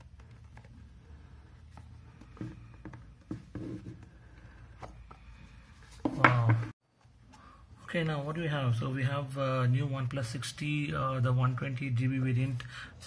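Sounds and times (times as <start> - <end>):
cardboard rubbing and tapping: 1.7 - 4.1.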